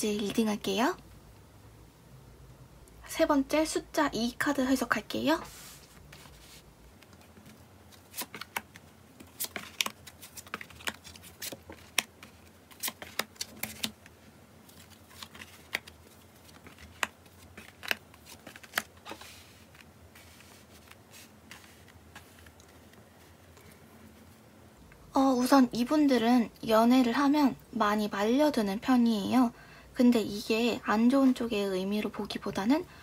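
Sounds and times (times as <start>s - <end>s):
cards snapping and tapping: 8.1s - 14.1s.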